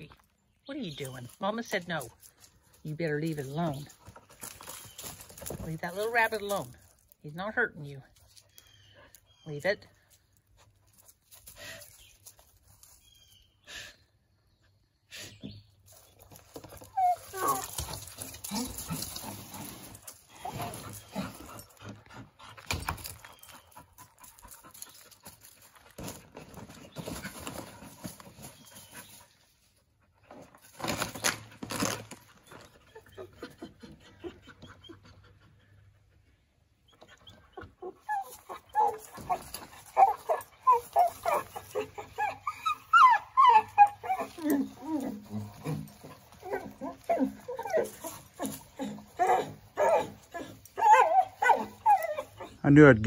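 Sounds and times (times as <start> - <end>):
dog yipping: 16.9 - 19.0, 37.0 - 52.6
dog dragging plastic pipe: 30.3 - 32.7.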